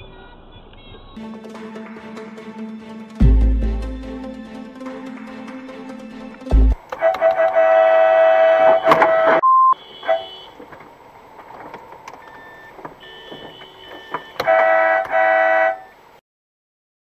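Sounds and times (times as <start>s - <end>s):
car horn blast: 0.0s - 1.3s, 7.0s - 10.6s, 13.0s - 15.9s
short single-pitched beep: 8.7s - 10.4s.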